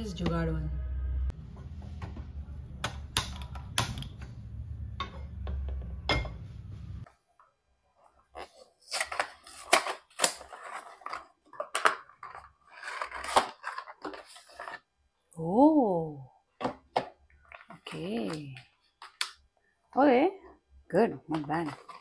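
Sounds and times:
low steady hum: 0.0 - 7.1.

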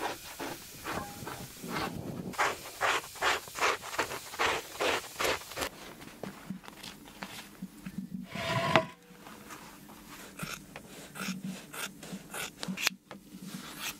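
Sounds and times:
scraper rasping on hide: 1.7 - 5.7, 10.1 - 13.9.

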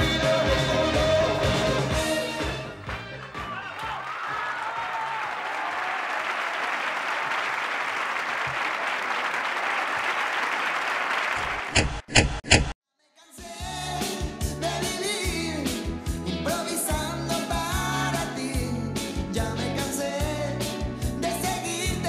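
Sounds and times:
audience applauding: 2.1 - 11.8.

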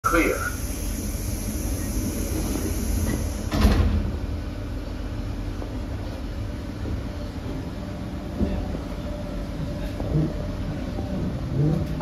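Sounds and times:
stand-clear announcement: 0.0 - 0.7
train low rumble: 0.0 - 12.0
train doors closing thud: 2.4 - 4.3.

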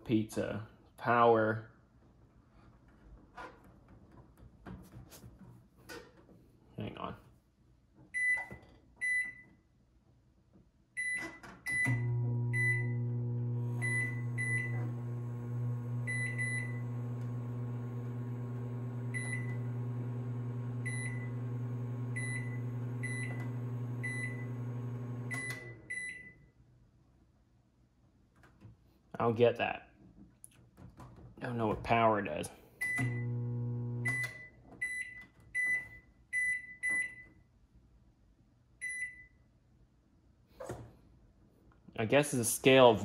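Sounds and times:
microwave keypad beeps: 11.0 - 13.0, 13.8 - 14.9, 16.0 - 17.0, 19.1 - 19.7, 20.8 - 26.3
microwave start click: 11.7 - 25.9
microwave humming: 11.7 - 26.0, 33.0 - 34.4.

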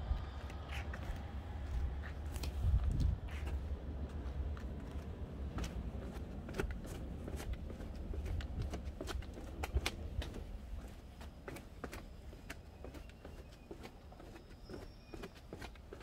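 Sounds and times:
steady low rumble: 0.0 - 11.5.

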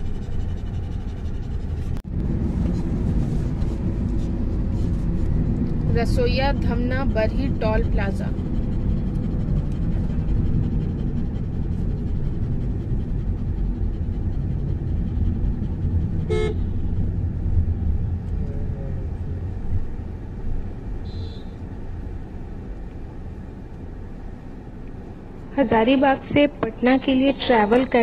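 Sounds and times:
car engine and road rumble: 0.0 - 28.0
car horn toot: 16.3 - 16.7, 21.0 - 21.6.

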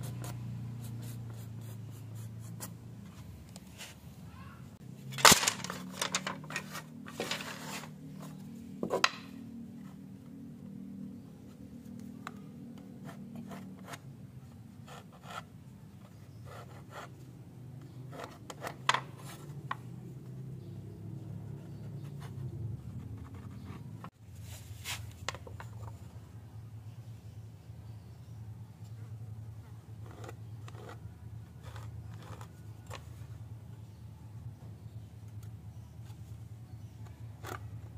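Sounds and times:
wooden strips clattering on boards: 5.1 - 7.9, 8.8 - 9.4
marker pen scratching on wood: 12.8 - 14.1, 14.8 - 17.2, 30.0 - 33.0.

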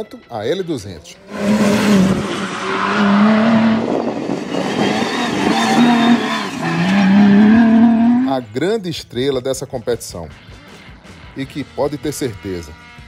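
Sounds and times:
pickup engine revving: 1.2 - 8.4.

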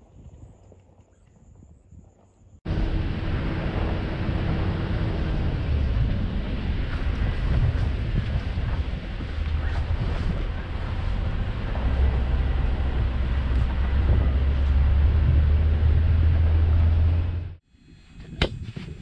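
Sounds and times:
wind noise: 0.0 - 19.0
vehicle engine and tyre rumble: 2.4 - 19.0.

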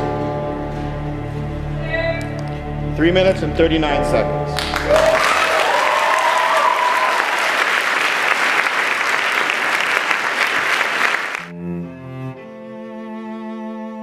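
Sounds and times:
audience applauding: 4.6 - 11.5
high voice cheering: 4.7 - 7.5.

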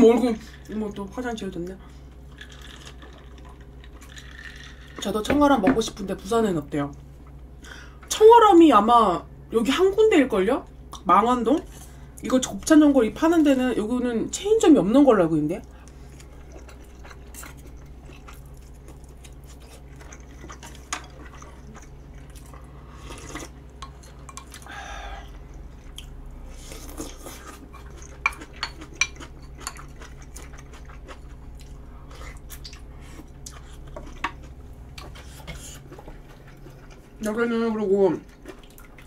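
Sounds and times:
steady low hum: 0.0 - 39.0
chewing: 15.6 - 37.3, 38.2 - 39.0
spoon and chopsticks clinking bowls: 28.2 - 29.8.

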